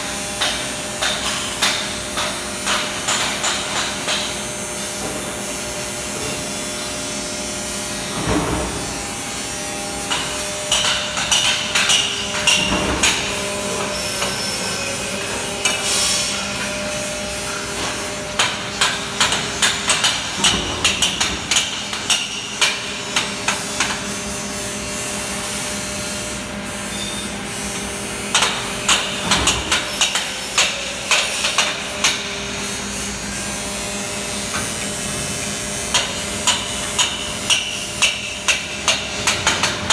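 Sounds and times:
workshop machine hum: 0.0 - 39.9
hammer striking metal frame: 10.1 - 14.4, 35.9 - 39.9.

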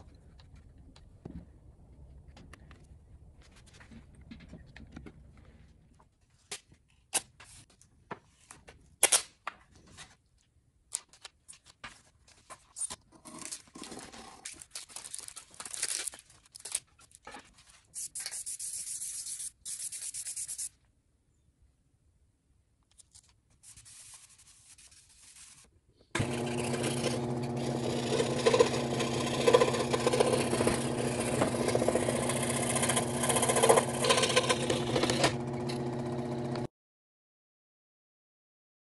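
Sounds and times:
scroll saw cutting plywood: 26.2 - 36.7.

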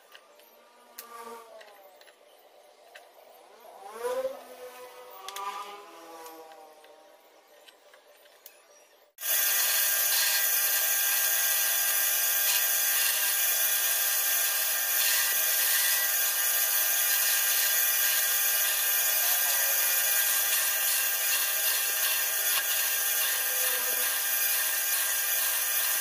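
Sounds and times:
bandsaw cutting wood: 9.2 - 26.0.

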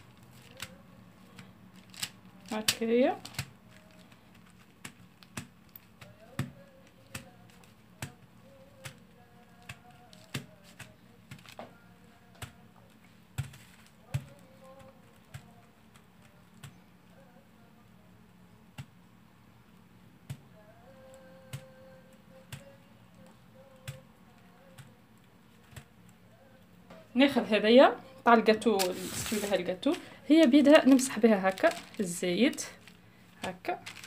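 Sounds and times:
pastry brush tapping in molds: 0.0 - 17.2, 20.2 - 26.0
faint steady hum: 0.0 - 34.0.

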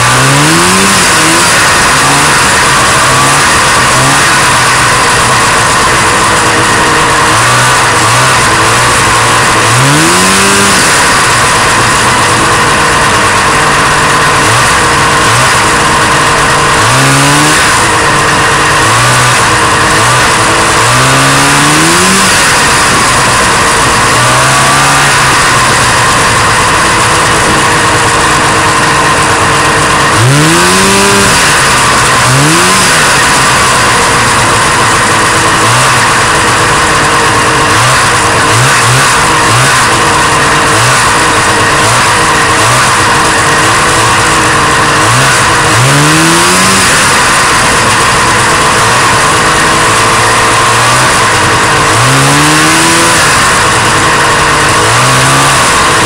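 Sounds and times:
snowmobile engine revving: 0.0 - 56.0
track and wind noise: 0.0 - 56.0.

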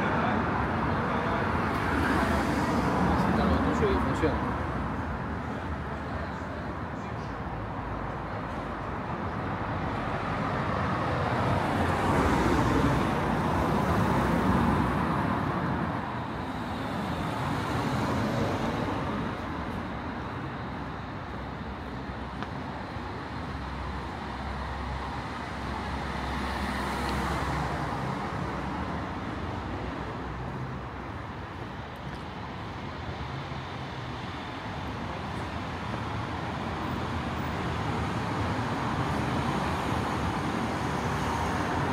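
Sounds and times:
cars passing: 0.0 - 41.9
traffic background hum: 0.0 - 41.9.

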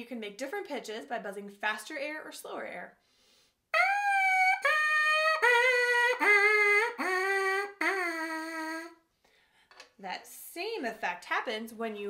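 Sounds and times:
lips buzzing into trumpet mouthpiece: 3.8 - 9.0.

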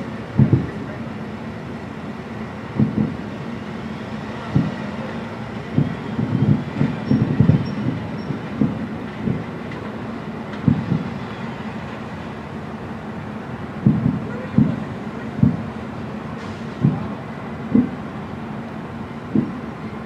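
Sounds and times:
steady background rumble: 0.0 - 20.0
distant firework booms: 0.4 - 0.8, 2.8 - 3.2, 5.7 - 9.5, 13.8 - 14.8, 17.7 - 18.0, 19.4 - 19.6.

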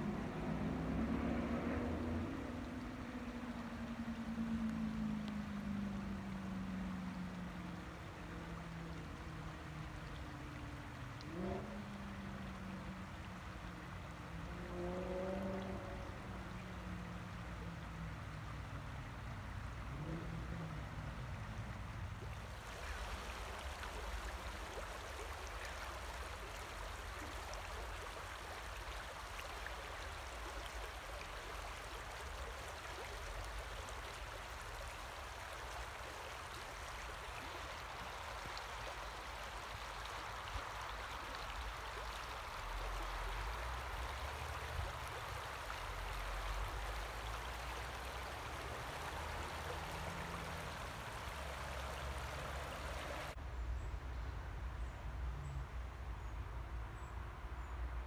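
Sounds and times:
river water rushing: 0.0 - 53.4.

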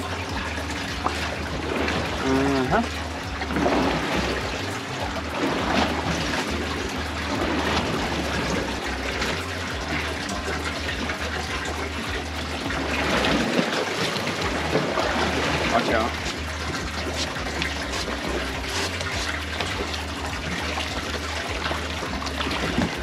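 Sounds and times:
low rumble: 0.0 - 13.6
water trickling and splashing: 0.0 - 23.0.

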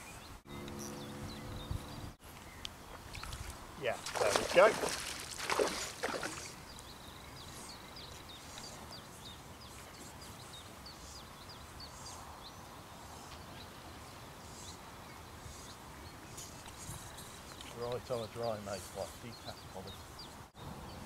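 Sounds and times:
bird chirping: 0.0 - 3.4, 4.2 - 21.0.

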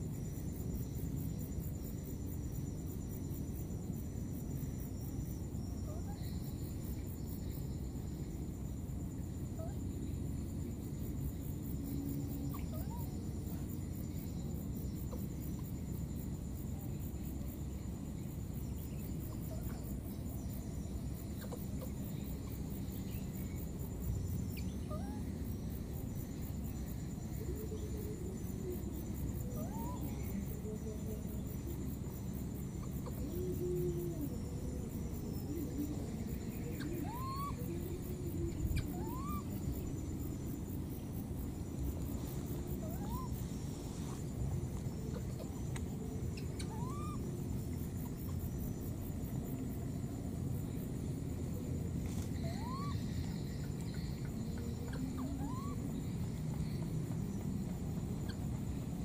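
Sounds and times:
insects trilling: 0.0 - 59.0
low background noise: 0.0 - 59.0.

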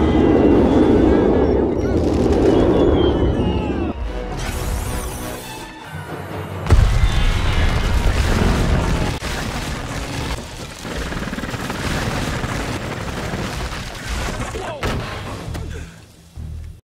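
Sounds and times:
deep boom: 6.7 - 9.2.

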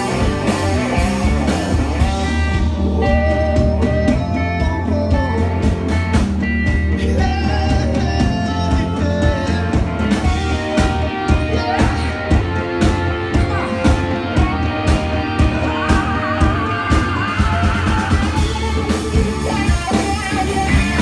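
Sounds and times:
drum kit beat: 0.0 - 21.0
electric guitars: 0.0 - 21.0
person singing: 0.0 - 21.0.

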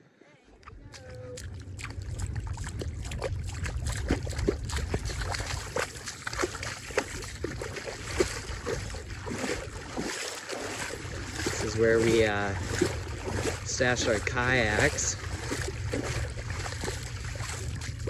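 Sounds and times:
water sloshing and splashing: 0.5 - 18.0
wind on microphone: 0.7 - 18.0.

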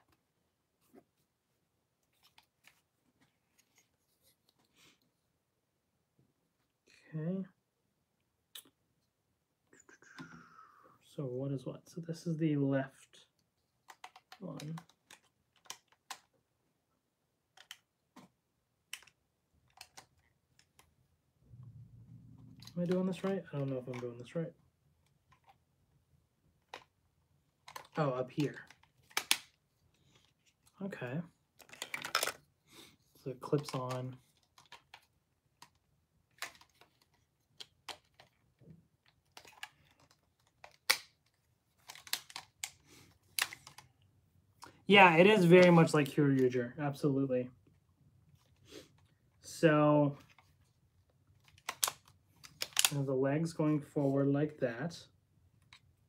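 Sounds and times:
plastic toy parts clicking: 13.8 - 16.3, 17.5 - 18.3, 18.9 - 20.9, 26.6 - 26.9, 27.6 - 29.6, 31.6 - 32.4, 33.6 - 38.4, 39.0 - 43.9, 51.4 - 53.0.

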